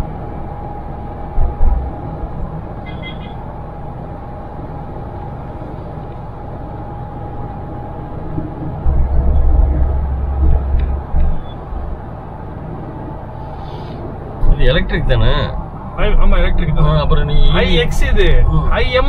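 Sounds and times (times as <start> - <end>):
loud low rumble: 0.0 - 5.5, 6.3 - 19.0
faint steady whine: 0.0 - 19.0
road and engine noise: 0.0 - 19.0
low thumps: 1.2 - 2.8, 8.2 - 13.3.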